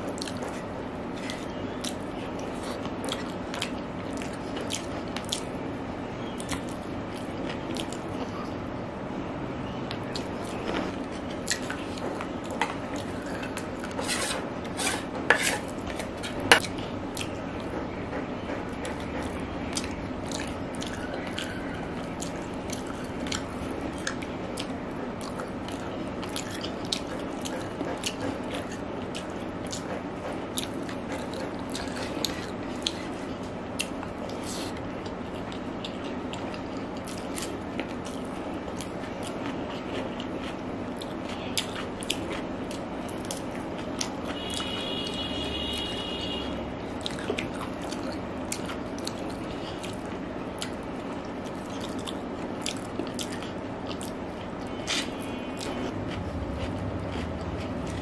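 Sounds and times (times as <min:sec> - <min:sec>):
person chewing: 0:00.0 - 0:05.6, 0:06.2 - 0:08.6, 0:09.9 - 0:17.8, 0:18.8 - 0:58.0
fingers mixing rice: 0:10.1 - 0:25.4
spoon scraping a plate: 0:13.8 - 0:16.6.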